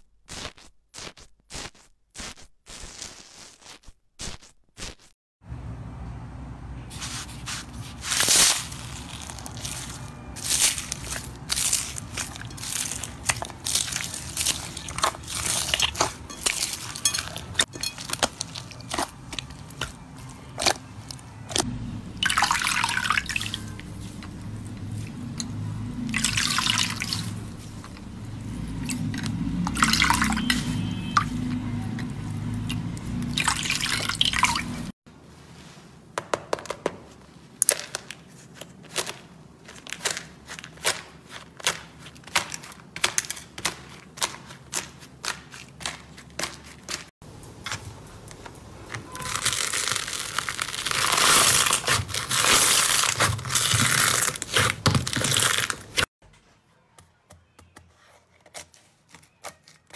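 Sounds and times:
foam beads crackling in slime: 0:00.3 - 0:05.1, 0:07.0 - 0:17.1, 0:49.1 - 0:56.1
crunchy slime crackles: 0:07.0 - 0:21.7, 0:49.1 - 0:56.1
wet slime squishing: 0:07.0 - 0:34.9, 0:37.6 - 0:47.1.

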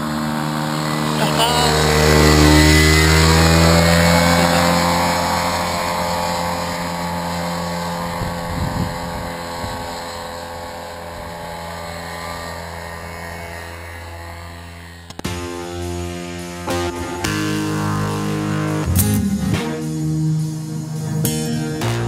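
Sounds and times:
paramotor engine and propeller drone: 0:00.0 - 0:22.0
wind noise on microphone: 0:06.0 - 0:11.6.

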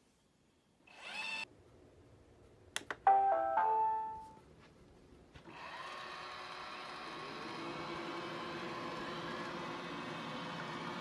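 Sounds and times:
clicks: 0:02.7 - 0:03.2
electronic tune: 0:03.1 - 0:04.4
robot vacuum motor whine: 0:05.5 - 0:11.0.

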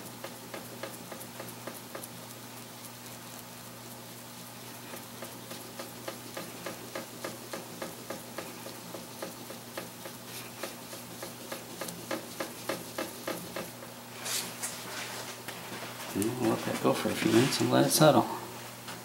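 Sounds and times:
polishing pad swishing on wood: 0:04.8 - 0:18.0.

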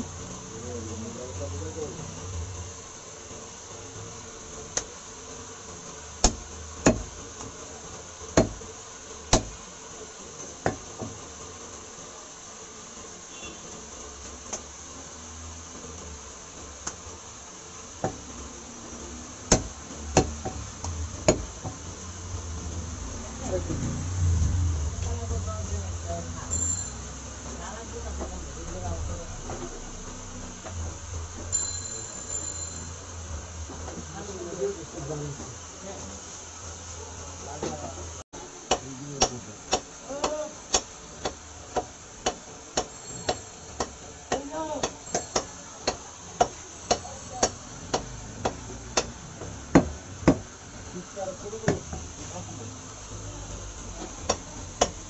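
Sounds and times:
cleaver striking wooden chopping block: 0:06.2 - 0:07.1, 0:08.4 - 0:08.6, 0:09.3 - 0:09.6, 0:19.5 - 0:21.8, 0:38.7 - 0:49.1, 0:49.8 - 0:50.5
knife chopping on wooden block: 0:06.2 - 0:07.1, 0:08.4 - 0:08.6, 0:09.3 - 0:09.6, 0:19.5 - 0:21.8, 0:49.8 - 0:50.5.

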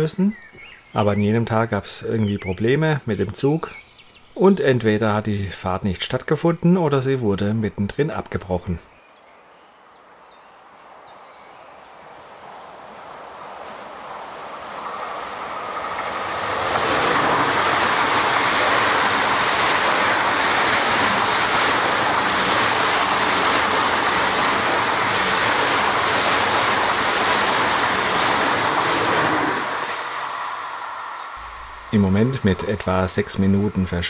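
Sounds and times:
high-speed train passing: 0:10.1 - 0:34.0.

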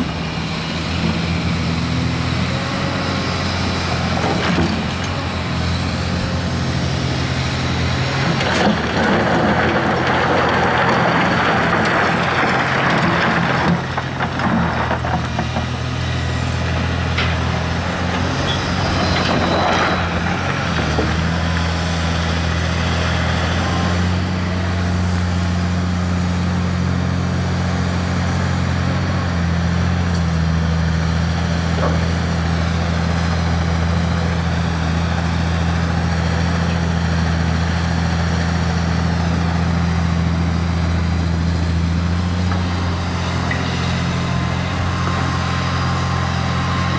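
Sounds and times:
excavator diesel engine running: 0:00.0 - 0:46.9
rock and gravel scraping: 0:04.0 - 0:21.8.

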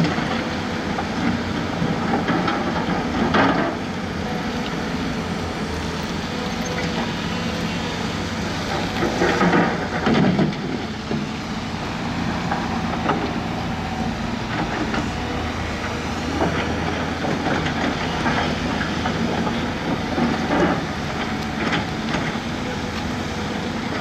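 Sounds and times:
heavy diesel machinery running: 0:00.0 - 0:24.0.

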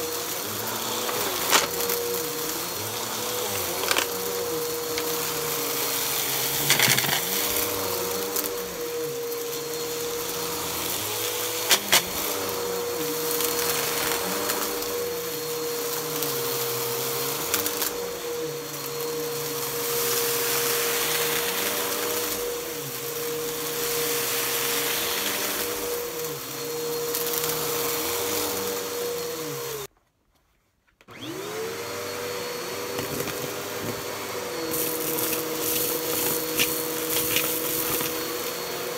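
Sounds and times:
vacuum cleaner on carpet: 0:00.0 - 0:29.9, 0:31.1 - 0:38.9
hose wand sucking debris: 0:34.6 - 0:38.6.

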